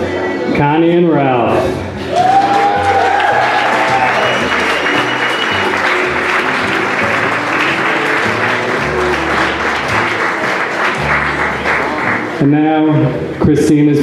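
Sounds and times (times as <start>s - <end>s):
music: 0.0s - 14.0s
crowd applauding: 2.0s - 12.5s.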